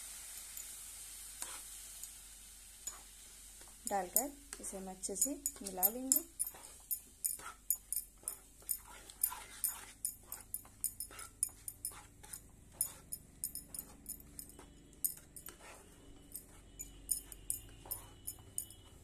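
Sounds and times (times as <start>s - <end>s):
wooden spatula scraping a pan: 1.4s - 1.7s, 4.6s - 19.0s.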